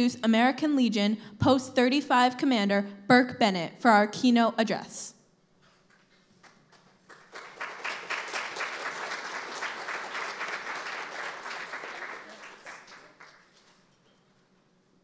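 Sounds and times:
audience applauding: 0:06.3 - 0:13.8.

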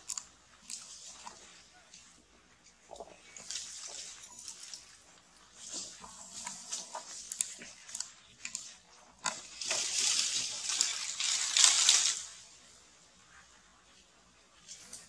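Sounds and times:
dry leaves rustling and crackling: 0:09.2 - 0:12.6.

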